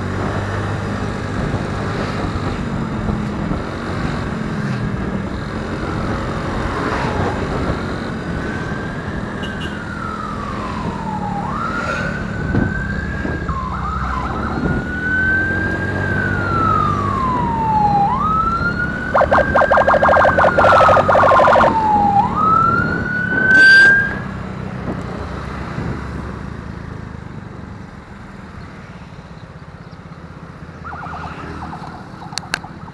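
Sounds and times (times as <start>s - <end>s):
road noise: 0.0s - 32.9s
emergency siren wailing: 6.0s - 24.5s, 30.8s - 32.9s
motorcycle engine: 14.3s - 23.3s.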